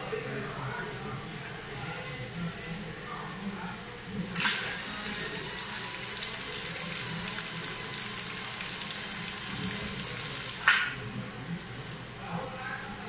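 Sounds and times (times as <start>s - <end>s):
wrapping machine crackling hiss: 4.4s - 10.7s.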